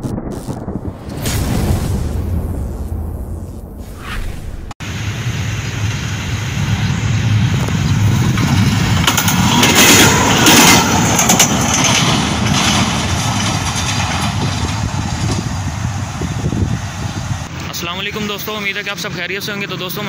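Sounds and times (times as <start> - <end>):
diesel locomotive engine rumbling: 4.8 - 20.0
loud clattering and knocking: 8.4 - 15.5.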